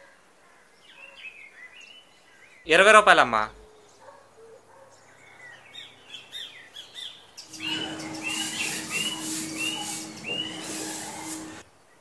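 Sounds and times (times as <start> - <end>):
birds chirping: 3.6 - 11.6
bird calling: 5.7 - 11.6
broom scrubbing wet stone steps: 7.5 - 11.6.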